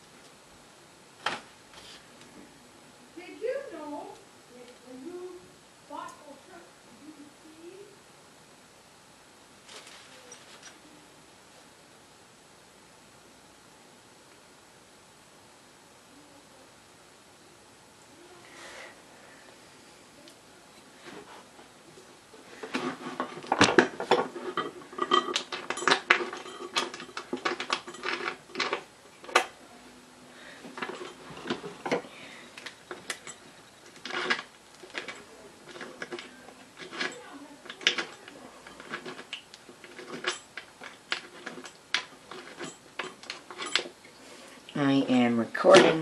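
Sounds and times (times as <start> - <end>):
small metal hardware clinking: 23.4 - 29.5, 32.6 - 44.0.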